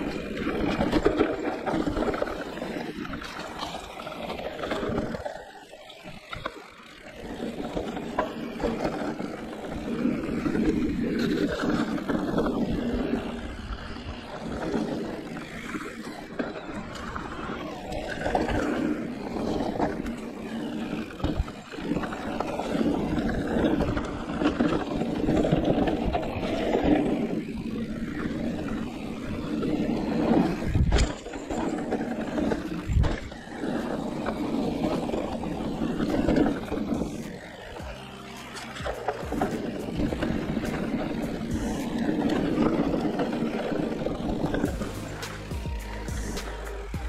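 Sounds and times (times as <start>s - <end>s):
bike tyres rumbling on trail: 0.0s - 47.0s.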